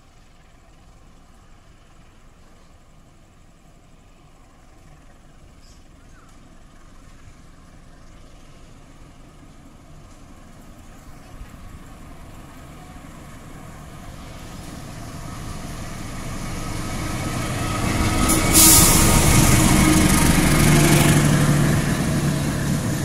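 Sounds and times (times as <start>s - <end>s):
diesel locomotive engine running: 0.0s - 23.0s
loud rush of train passing: 8.4s - 23.0s.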